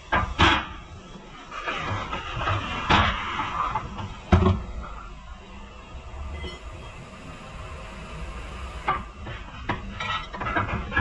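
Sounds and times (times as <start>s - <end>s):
low workshop rumble: 0.0s - 11.0s.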